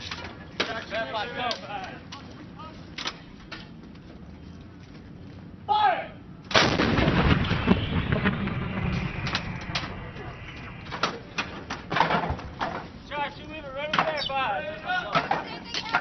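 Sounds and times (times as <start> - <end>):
artillery gun blast: 6.5 - 12.1
low rumble: 6.7 - 13.0.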